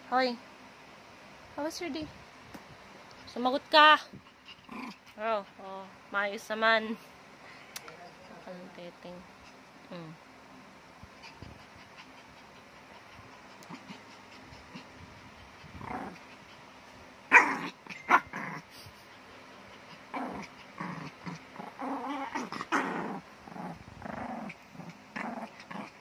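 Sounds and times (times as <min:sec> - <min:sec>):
small dog growling in play: 0:04.4 - 0:05.4, 0:11.2 - 0:16.6, 0:17.3 - 0:19.0, 0:19.8 - 0:26.0.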